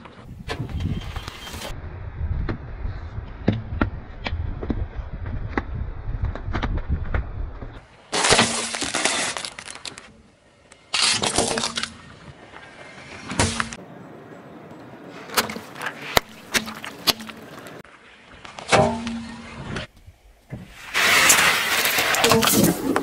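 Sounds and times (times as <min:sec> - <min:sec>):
sharp cracks and pops: 0:05.5 - 0:12.0
tyre crushing plastic containers: 0:08.1 - 0:10.1.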